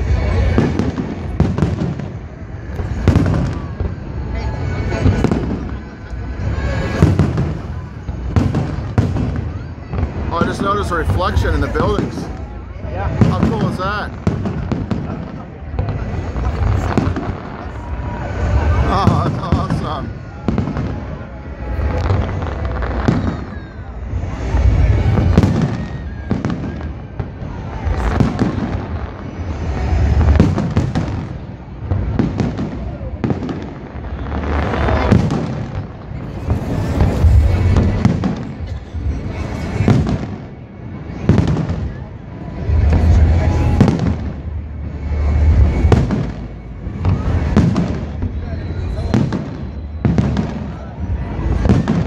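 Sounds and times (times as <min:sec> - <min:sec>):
continuous low rumble: 0:00.0 - 0:52.0
fireworks booming: 0:00.0 - 0:52.0
low rumble: 0:34.0 - 0:40.7.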